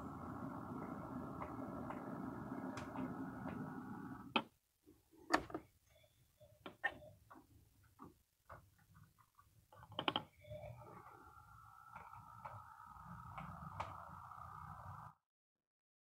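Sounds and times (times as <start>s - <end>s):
model train running on track: 0.0s - 4.3s.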